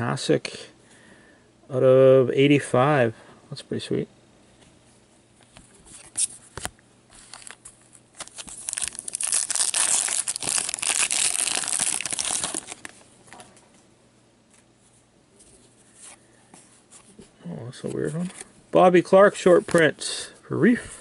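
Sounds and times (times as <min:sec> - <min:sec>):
wrapper tearing and crinkling: 0:07.2 - 0:13.0.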